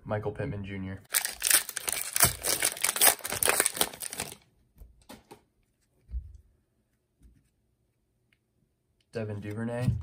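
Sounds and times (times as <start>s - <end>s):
cellophane wrapper crinkling and tearing: 1.1s - 4.5s.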